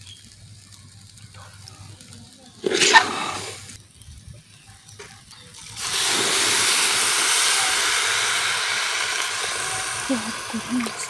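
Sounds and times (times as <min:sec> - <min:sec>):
water pouring into a pot: 0:02.5 - 0:03.8, 0:05.4 - 0:11.0.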